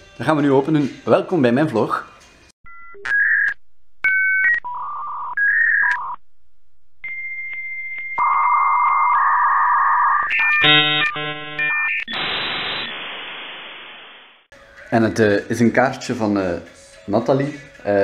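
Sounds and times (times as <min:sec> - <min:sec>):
electronic jingle beeps and tones: 0:07.0 - 0:14.3
held buzzy tone: 0:08.2 - 0:14.4.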